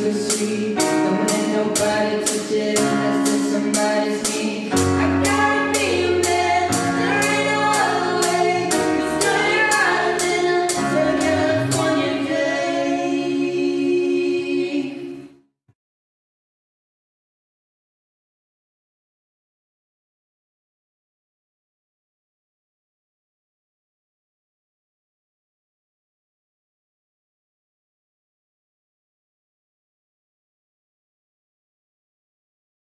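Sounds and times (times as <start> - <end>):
band singing in harmony: 0.0 - 15.2
keyboard accompaniment: 0.0 - 15.5.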